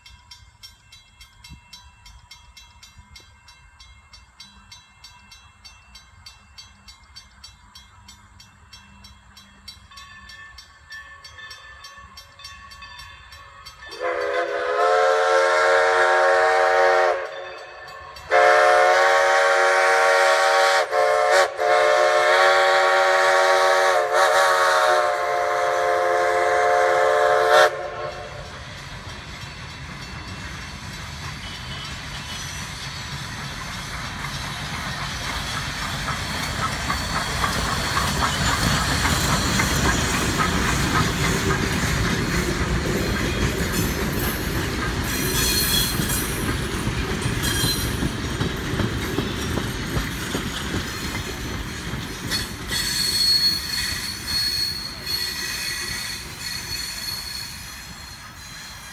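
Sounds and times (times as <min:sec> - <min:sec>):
coach wheels clattering on rails: 0:27.7 - 0:58.9
wheels squealing: 0:28.6 - 0:58.9.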